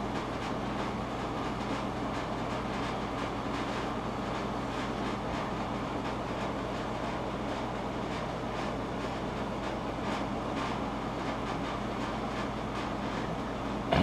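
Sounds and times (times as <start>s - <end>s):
mechanical hum with low rumble: 0.0s - 14.0s.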